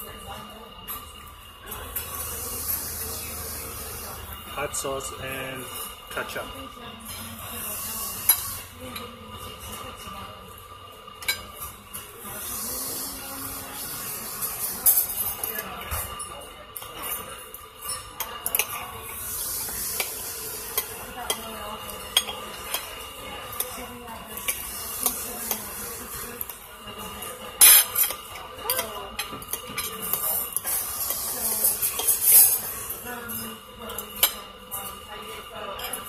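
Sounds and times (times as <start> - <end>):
cutlery scraping on a plate: 7.1 - 9.9, 11.2 - 34.9.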